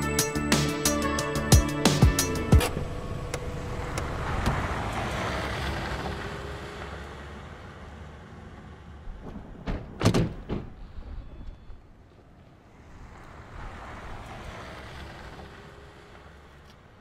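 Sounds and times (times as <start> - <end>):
vehicle passing: 2.3 - 9.6, 12.2 - 17.0
car doors shutting: 2.5 - 4.9.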